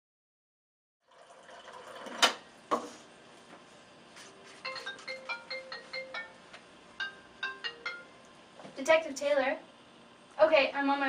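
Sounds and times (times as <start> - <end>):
water dispenser filling cup: 1.0 - 2.4
phone ringtone beeping: 4.6 - 8.2.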